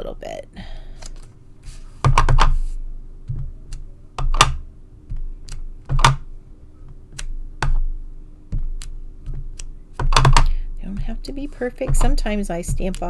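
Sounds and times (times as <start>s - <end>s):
stamp tapping on ink pad: 11.8s - 13.0s.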